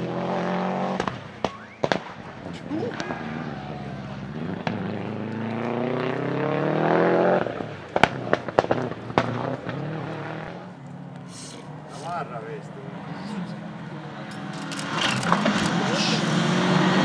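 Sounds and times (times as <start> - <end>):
rally car engine accelerating: 0.0 - 17.0
backfire bangs: 0.9 - 5.2, 7.4 - 10.6.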